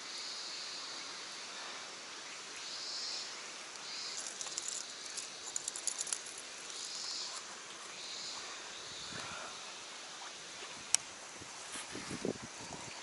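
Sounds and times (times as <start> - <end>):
outdoor hiss: 0.0 - 13.0
fishing lure clicks and rattles: 4.2 - 6.4.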